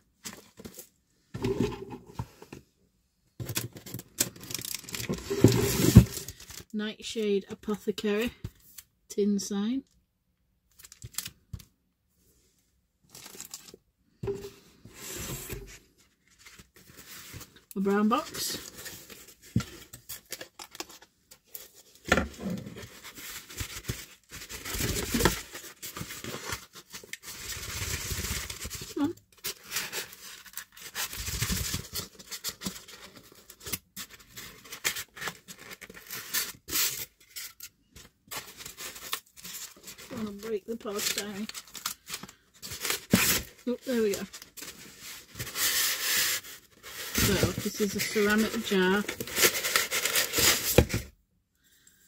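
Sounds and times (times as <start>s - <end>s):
plastic packaging crinkling: 3.8s - 6.7s, 10.7s - 11.6s, 13.1s - 13.8s, 22.8s - 51.0s
cardboard box scraping and rubbing: 5.0s - 6.2s.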